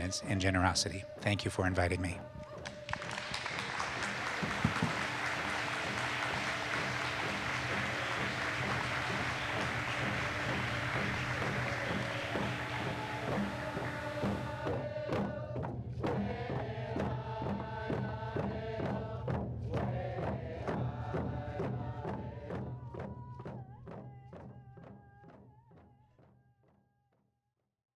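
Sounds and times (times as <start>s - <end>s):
voices chanting: 0.0s - 22.6s
fast steady drum beat: 3.3s - 25.2s.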